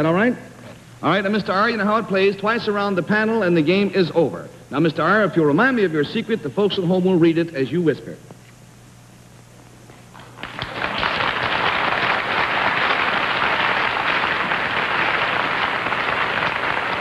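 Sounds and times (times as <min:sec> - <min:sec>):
audience applauding: 0:10.2 - 0:17.0.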